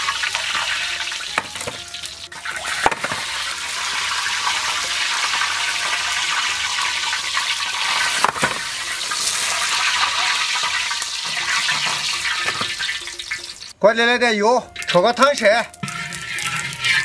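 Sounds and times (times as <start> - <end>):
metal ladle clack: 1.4 - 1.8.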